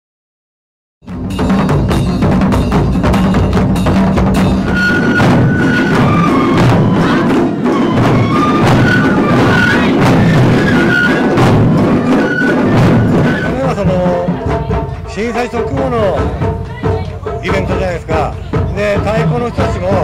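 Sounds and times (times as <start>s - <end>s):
taiko drums in driving rhythm: 1.0s - 20.0s
high flute melody: 4.4s - 14.5s.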